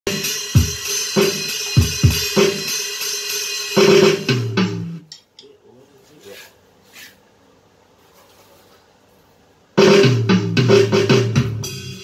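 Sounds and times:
electronic drum beat: 0.1 - 5.1, 9.8 - 12.0.

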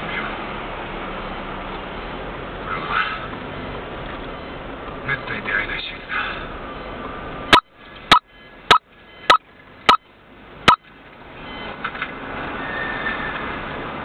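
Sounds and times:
car road and engine noise: 0.0 - 14.0.

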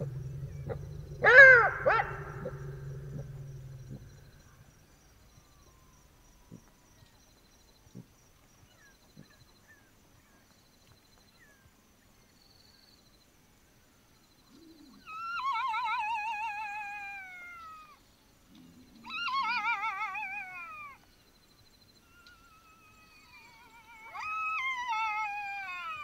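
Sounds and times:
jackal howling: 0.0 - 4.6, 19.0 - 21.0, 22.2 - 26.0.

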